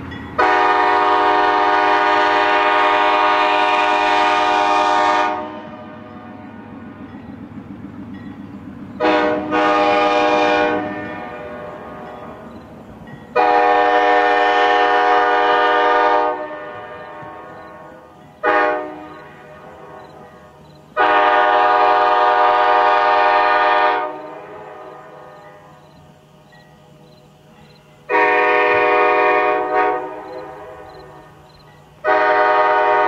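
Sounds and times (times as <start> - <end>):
locomotive air horn blasts: 0.4 - 6.5, 9.0 - 12.5, 13.4 - 20.4, 21.0 - 25.8, 28.1 - 31.4, 32.0 - 33.0.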